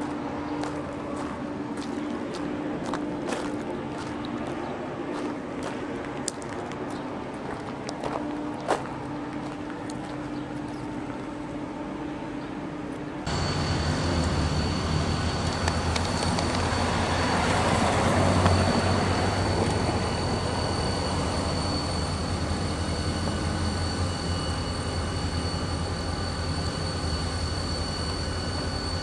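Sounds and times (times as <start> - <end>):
diesel locomotive humming: 0.0 - 29.0
freight train rumble: 0.0 - 29.0
thin high tone: 13.2 - 29.0.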